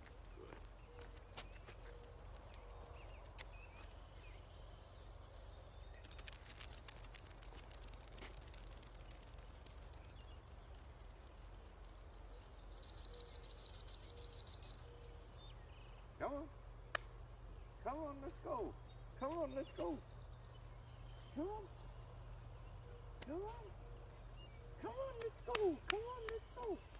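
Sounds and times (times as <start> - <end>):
dog whistle toots: 12.8 - 14.8.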